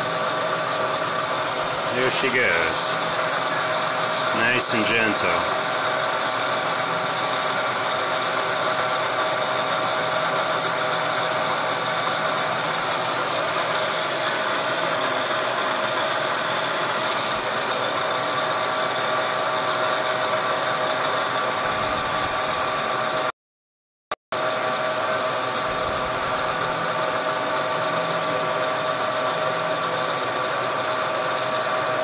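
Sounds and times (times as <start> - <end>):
milling machine whirring: 0.0 - 23.2, 24.5 - 32.0.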